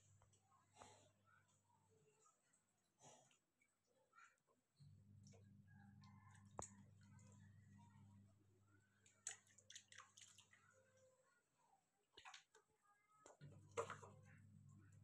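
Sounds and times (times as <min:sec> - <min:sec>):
low steady hum: 0:04.8 - 0:11.6, 0:13.4 - 0:15.0
water splashing in plastic basin: 0:09.0 - 0:10.8, 0:12.2 - 0:12.7, 0:13.3 - 0:14.3.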